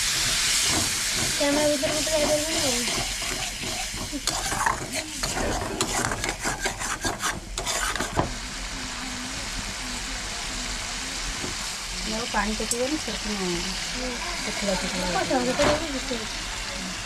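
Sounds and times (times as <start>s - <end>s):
gravy sizzling: 0.0s - 17.0s
metal ladle scraping and knocking: 2.9s - 8.2s.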